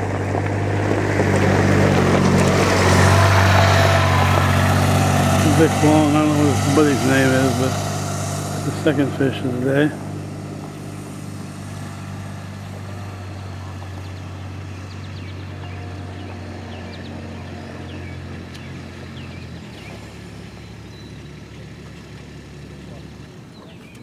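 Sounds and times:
engine humming: 0.0s - 24.0s
bird chirps: 13.8s - 21.7s, 22.8s - 24.0s.

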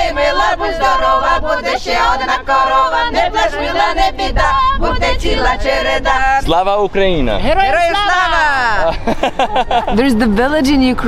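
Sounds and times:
women's choir singing unaccompanied: 0.0s - 6.5s.

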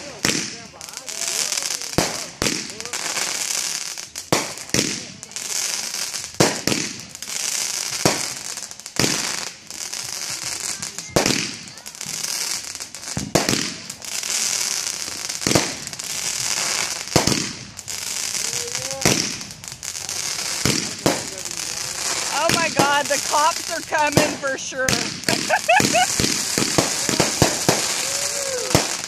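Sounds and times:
firework bangs: 0.0s - 29.0s
high hiss: 11.8s - 29.0s.

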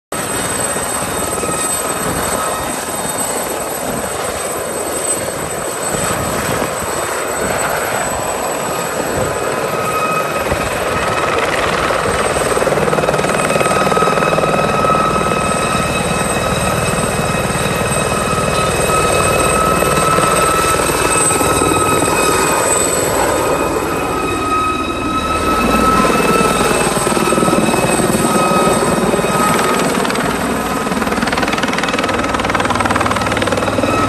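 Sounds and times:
helicopter rotor noise: 0.1s - 34.0s
helicopter turbine whine: 0.1s - 34.0s.

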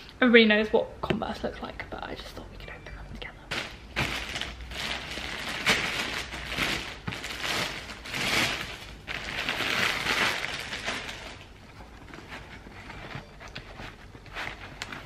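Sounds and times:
plastic bag rustling and crinkling: 3.5s - 15.0s.

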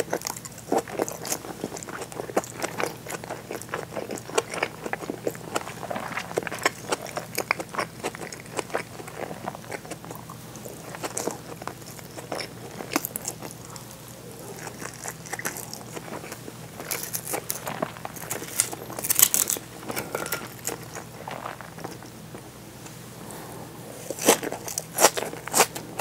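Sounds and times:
mouth chewing clicks and smacks: 0.0s - 13.9s.

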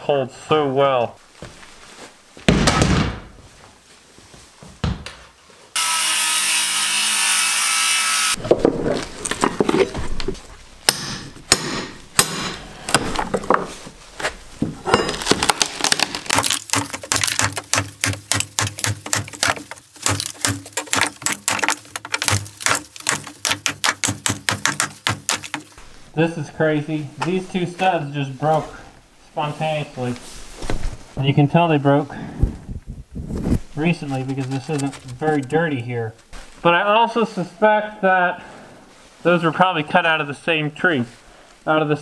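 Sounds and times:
power tool running: 5.8s - 8.4s
wood cracking and knocking: 8.4s - 13.8s, 14.6s - 25.8s, 34.2s - 35.6s
short knocks and scrapes: 16.3s - 25.9s, 33.2s - 35.6s.

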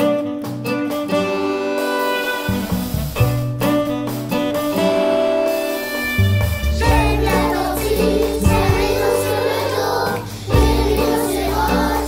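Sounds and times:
drum kit: 0.0s - 12.0s
violin: 0.6s - 4.0s, 5.7s - 11.9s
children singing together: 6.8s - 12.0s.

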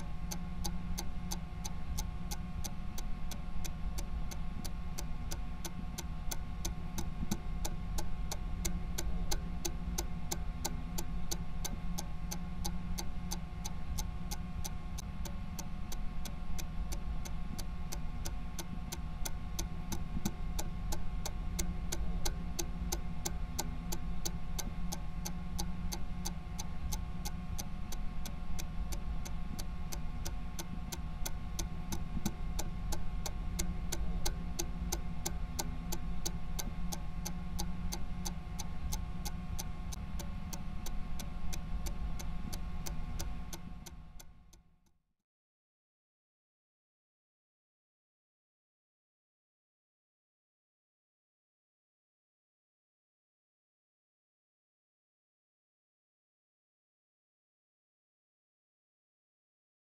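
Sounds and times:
stopwatch ticking: 0.0s - 44.6s.

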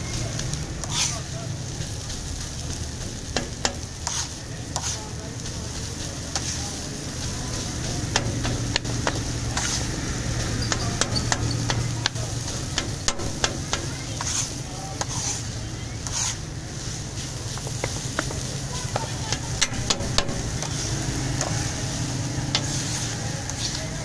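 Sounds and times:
light sizzle: 0.0s - 24.0s
metal spatula scraping and tapping: 0.8s - 1.3s, 3.1s - 5.1s, 6.3s - 6.6s, 7.2s - 16.4s, 17.5s - 21.7s, 22.5s - 23.8s.

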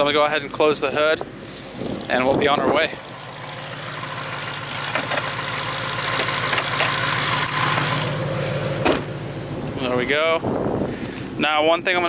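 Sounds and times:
car engine idling: 0.0s - 11.9s
car hood slamming shut: 8.8s - 9.1s.

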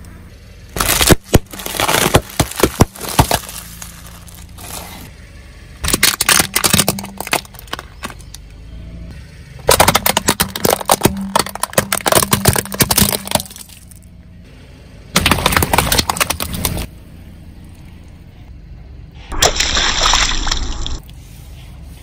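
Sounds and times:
plastic toys cracking under tyre: 0.7s - 5.0s, 5.8s - 8.5s, 9.6s - 14.0s, 15.2s - 16.9s
crisp packets crackling: 0.8s - 5.0s.

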